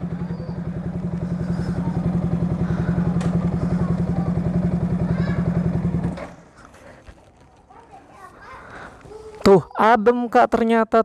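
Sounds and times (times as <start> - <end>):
motorcycle engine idling: 0.0 - 6.6.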